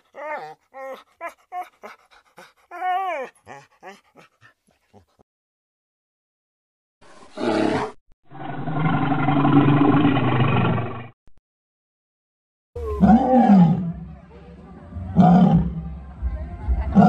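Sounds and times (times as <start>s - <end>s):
dog whimpering and yelping: 0.0s - 5.1s.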